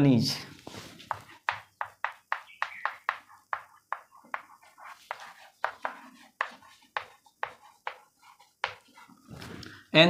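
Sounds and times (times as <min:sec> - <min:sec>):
chalk tapping and scraping on blackboard: 0:00.5 - 0:09.4.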